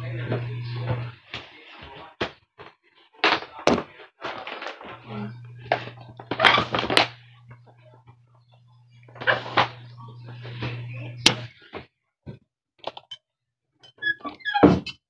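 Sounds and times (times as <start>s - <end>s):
steady low hum: 0.0s - 1.2s, 5.0s - 11.7s.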